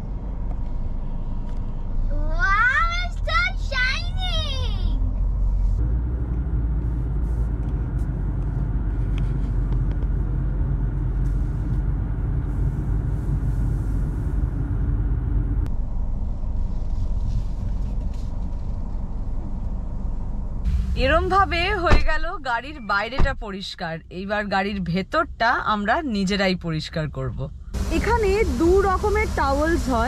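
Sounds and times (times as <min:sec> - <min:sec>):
machinery hum: 0:18.8 - 0:22.9, 0:27.1 - 0:30.0
car wash machinery rumbling: 0:27.7 - 0:30.0.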